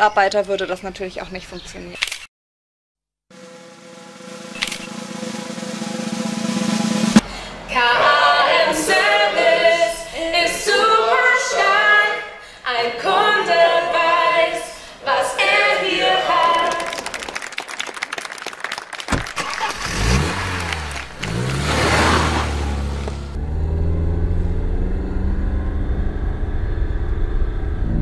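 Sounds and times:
group singing a cappella: 7.6s - 17.1s
car engine pulling away: 19.2s - 28.0s.

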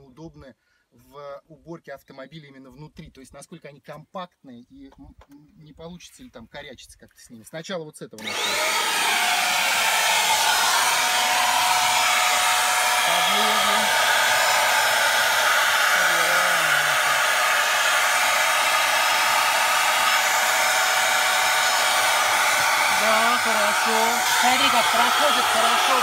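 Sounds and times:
handheld vacuum cleaner running: 8.2s - 26.0s.

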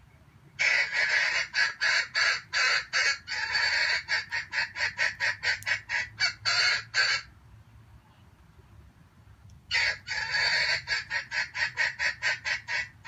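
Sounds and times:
jungle fowl cackling: 0.6s - 7.3s, 9.7s - 13.0s.

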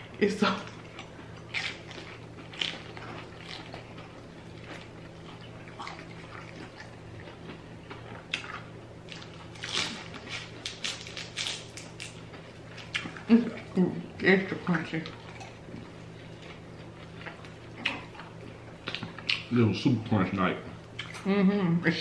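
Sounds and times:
crunching of fried food: 0.6s - 13.3s.

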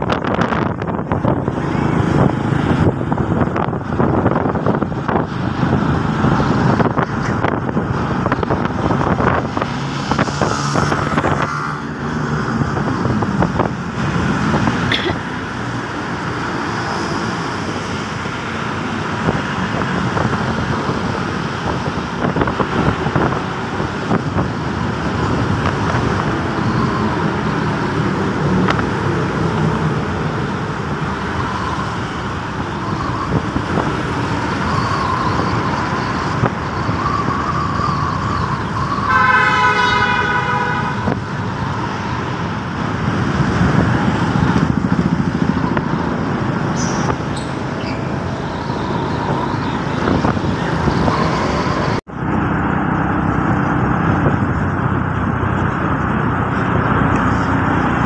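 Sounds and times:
passing road traffic: 0.0s - 58.0s
wind rushing over microphone: 0.0s - 58.0s.

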